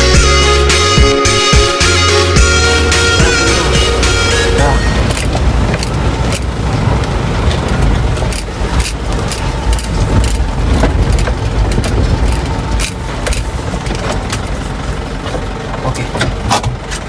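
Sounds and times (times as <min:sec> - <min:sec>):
truck engine rumble: 0:00.0 - 0:17.0
cab knocking and rattling: 0:04.9 - 0:17.0.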